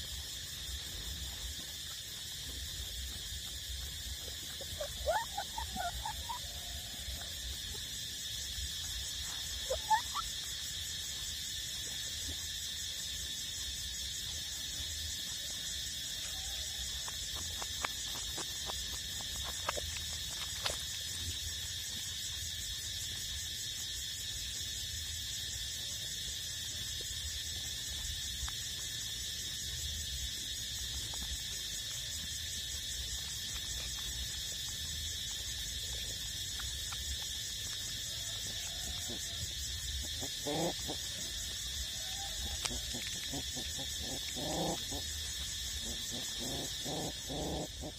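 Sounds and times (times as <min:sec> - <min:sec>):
high-pitched insect chorus: 0:00.0 - 0:47.9
puppy whimpering: 0:04.8 - 0:06.5.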